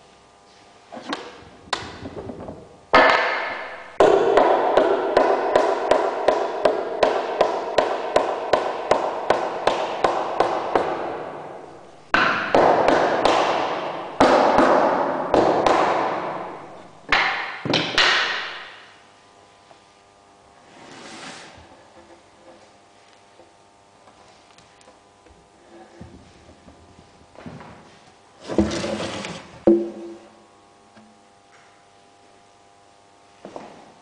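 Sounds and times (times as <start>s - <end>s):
hammer striking wood: 3.0s - 18.9s, 29.7s - 30.2s.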